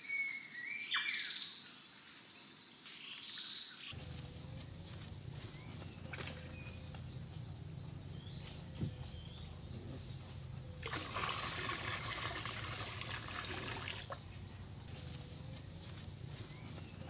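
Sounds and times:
water splashing over rocks: 10.8 - 14.2.

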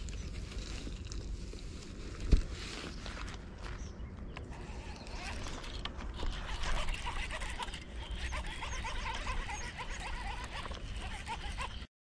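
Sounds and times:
short chirping animal calls: 6.2 - 11.9.

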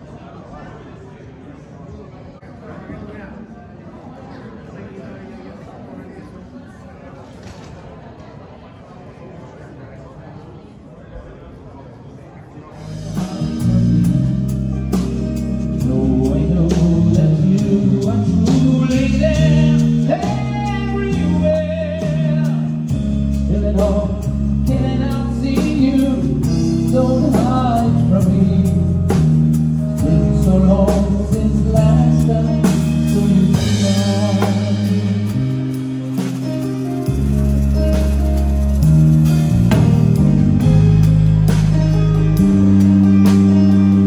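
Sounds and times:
person singing: 12.8 - 41.0
live band playing: 12.8 - 44.0.

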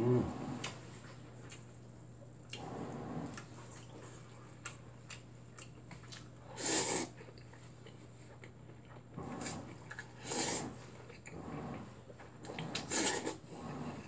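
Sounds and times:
chewing mouth clicks: 3.3 - 6.4
person slurping noodles: 6.5 - 7.2, 9.2 - 14.0.

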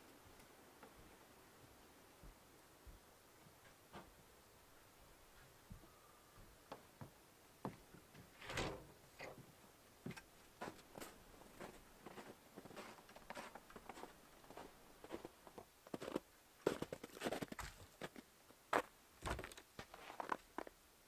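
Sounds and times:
footsteps crunching through snow: 10.6 - 18.2.

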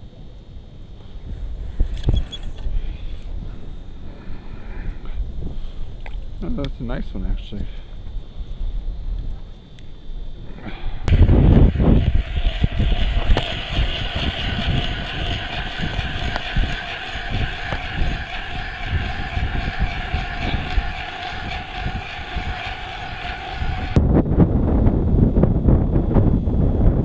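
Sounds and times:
wind buffeting microphone: 10.3 - 27.0
ice auger motor drilling: 11.1 - 24.0.

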